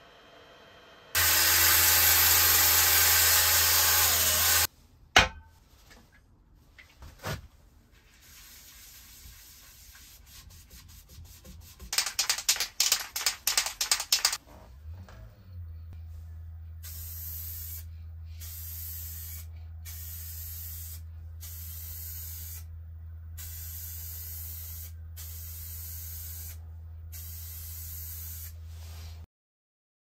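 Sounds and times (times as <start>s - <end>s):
wood lathe motor hum: 0.0s - 4.7s
aerosol spray can hissing: 12.0s - 14.4s, 16.8s - 22.7s, 23.4s - 26.6s, 27.2s - 28.6s.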